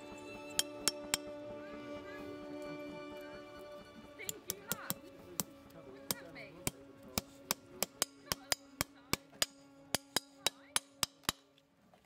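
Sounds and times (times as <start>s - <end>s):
hammer tapping horseshoe nails: 6.7s - 11.4s.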